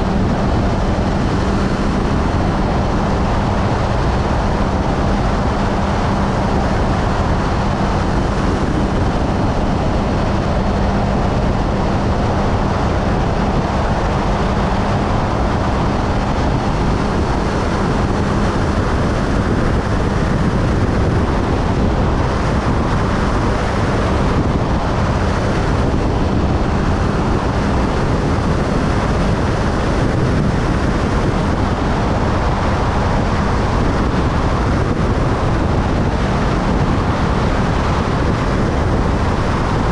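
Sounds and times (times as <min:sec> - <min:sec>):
motorcycle engine hum: 0:00.0 - 0:39.9
road noise: 0:00.0 - 0:39.9
wind on microphone: 0:00.0 - 0:39.9.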